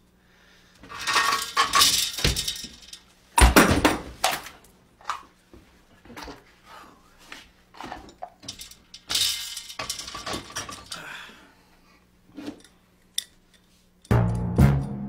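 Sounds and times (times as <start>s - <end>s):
bicycle wheel clinking and rattling: 0.9s - 3.1s, 7.8s - 11.1s
loud music with deep notes: 14.1s - 15.0s.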